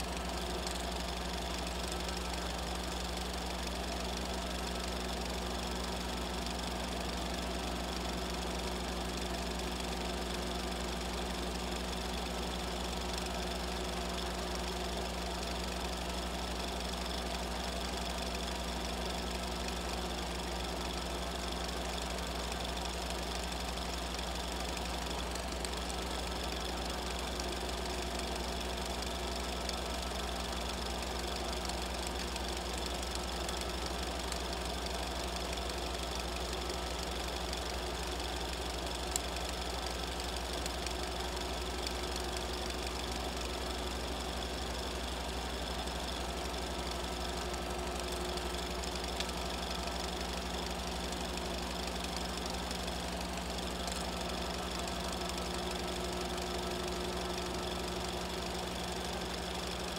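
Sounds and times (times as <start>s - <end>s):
fast knocking rattle: 0.0s - 59.9s
small machine humming: 0.0s - 59.9s.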